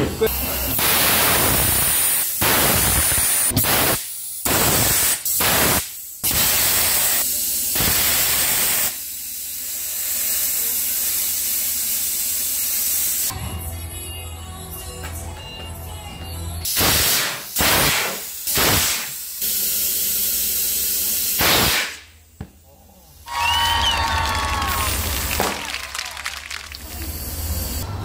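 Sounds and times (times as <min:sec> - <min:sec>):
compressed air hissing: 0:00.2 - 0:13.3, 0:16.6 - 0:22.1, 0:26.8 - 0:28.0.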